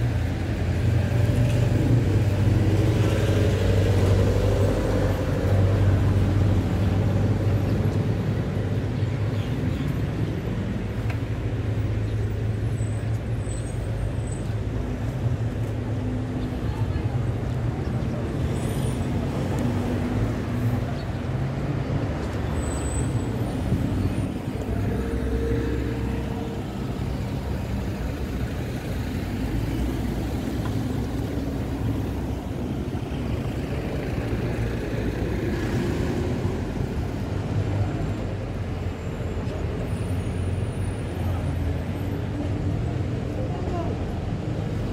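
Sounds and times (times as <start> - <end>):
street traffic rumble: 0.0 - 44.9.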